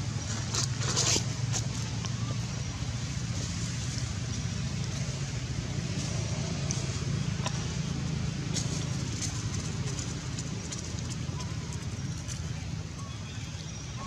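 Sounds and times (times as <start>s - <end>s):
traffic rumble: 0.0s - 14.0s.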